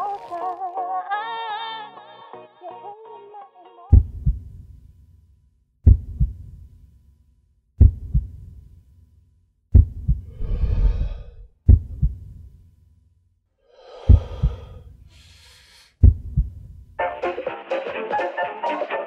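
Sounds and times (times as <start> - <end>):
heartbeat thumps: 3.9 - 4.7, 5.8 - 6.6, 7.8 - 8.6, 9.7 - 12.4, 14.0 - 14.8, 16.0 - 16.8
breath drawn: 10.3 - 11.5, 13.6 - 16.0.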